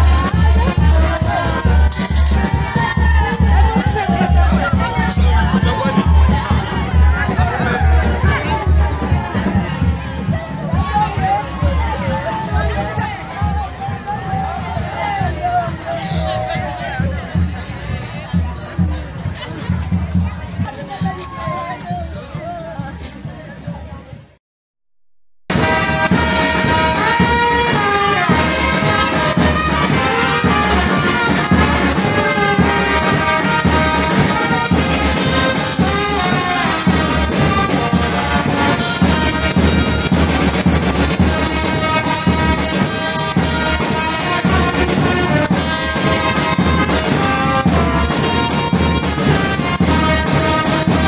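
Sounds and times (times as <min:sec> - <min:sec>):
trumpets playing melody: 0:00.0 - 0:13.2, 0:25.5 - 0:51.0
marching drums: 0:00.0 - 0:24.4, 0:25.5 - 0:51.0.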